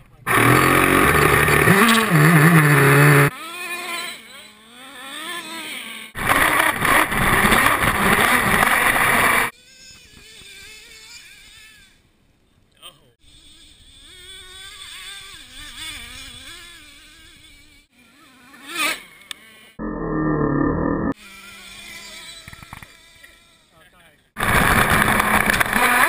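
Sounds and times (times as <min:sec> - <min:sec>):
nitro engine revving: 0:00.3 - 0:09.5, 0:19.8 - 0:21.2, 0:24.4 - 0:26.0.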